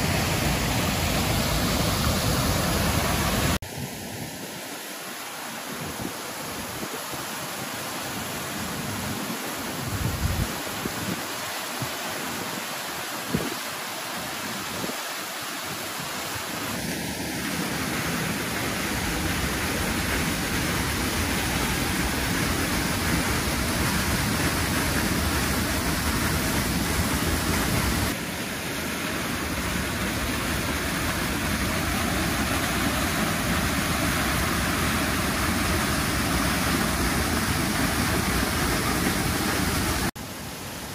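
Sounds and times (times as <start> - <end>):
wind buffeting the microphone: 9.8 - 11.9.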